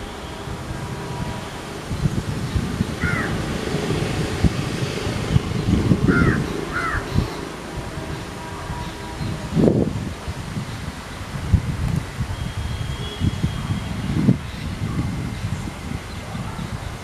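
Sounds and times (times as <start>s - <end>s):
wind rumble on microphone: 0.0s - 17.0s
bird calls: 6.1s - 7.6s.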